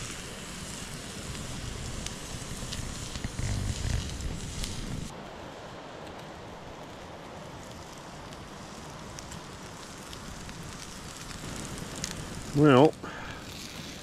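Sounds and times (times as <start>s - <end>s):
campfire crackles: 0.0s - 14.0s
steak searing hiss: 0.0s - 14.0s.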